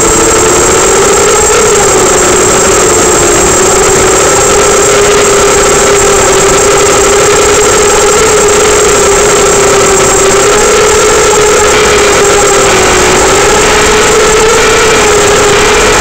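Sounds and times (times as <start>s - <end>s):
drone motors whining: 0.0s - 16.0s.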